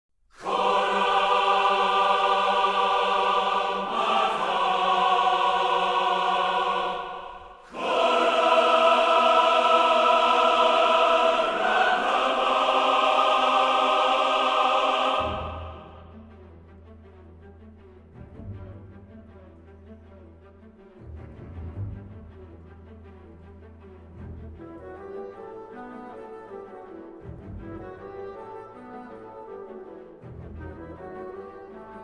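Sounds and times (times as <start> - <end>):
choir singing sustained chords: 0.4 - 16.9.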